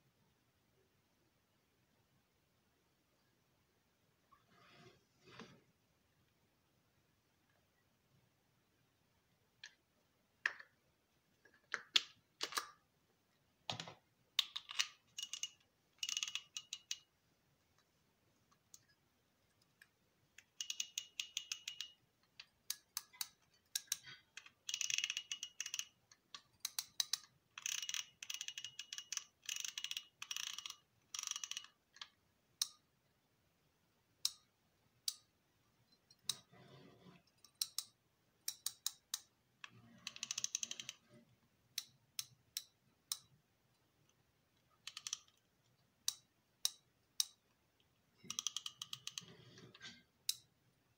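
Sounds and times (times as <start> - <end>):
fishing reel ratchet clicking: 15.2 - 16.9, 24.7 - 25.9, 27.1 - 31.7.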